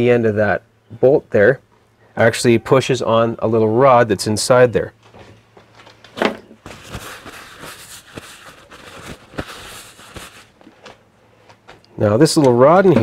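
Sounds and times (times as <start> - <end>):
paper towel crumpling: 6.6 - 11.0.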